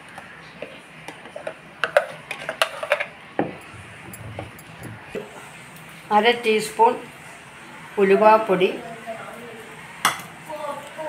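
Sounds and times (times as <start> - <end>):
wooden spoon knocking metal pot: 3.4 - 5.2.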